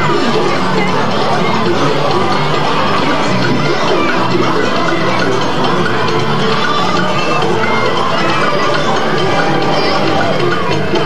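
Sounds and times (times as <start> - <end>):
parade music: 0.0 - 11.0.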